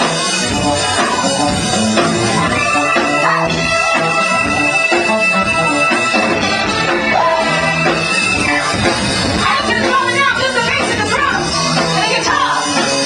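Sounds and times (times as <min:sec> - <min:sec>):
soul band playing: 0:00.0 - 0:13.0
woman singing: 0:00.7 - 0:04.1, 0:09.4 - 0:13.0.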